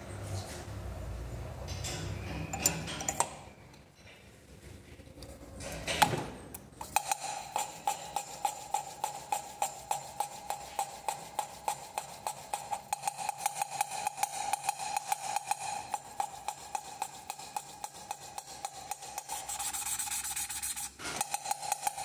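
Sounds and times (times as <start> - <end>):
valve lapping scraping ticks: 6.8 - 22.0.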